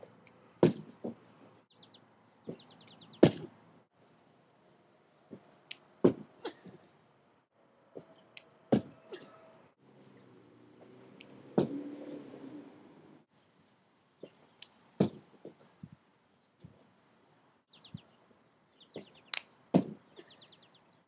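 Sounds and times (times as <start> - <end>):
feet landing on gymnastics mat: 0.6 - 1.2, 3.2 - 3.5, 6.0 - 6.3, 8.7 - 9.0, 15.0 - 15.2, 19.8 - 20.0
birds chirping: 1.0 - 4.3, 16.3 - 21.0.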